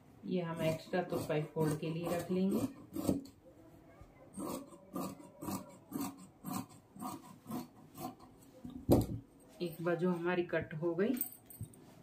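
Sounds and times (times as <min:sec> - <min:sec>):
shears snipping fabric: 0:00.6 - 0:03.3, 0:04.4 - 0:08.3.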